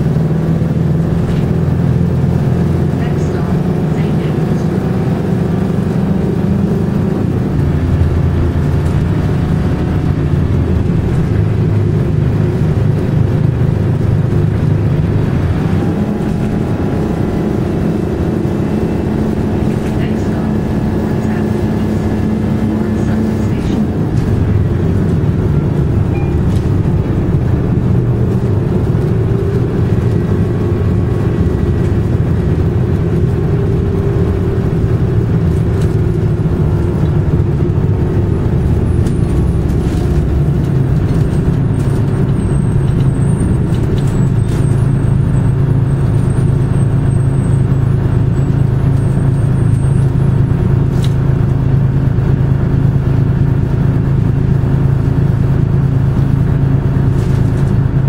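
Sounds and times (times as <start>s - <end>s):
bus engine droning: 0.0s - 58.0s.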